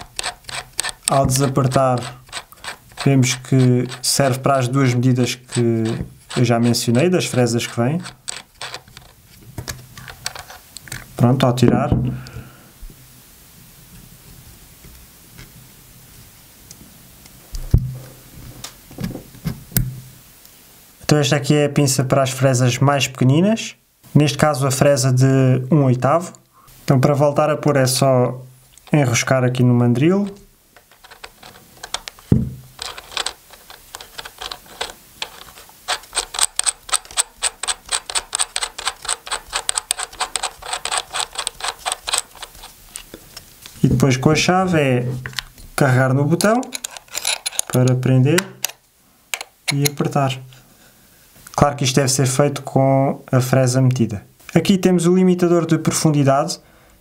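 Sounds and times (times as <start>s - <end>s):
small parts clicking: 0.0s - 11.1s, 30.2s - 43.2s, 46.4s - 50.0s.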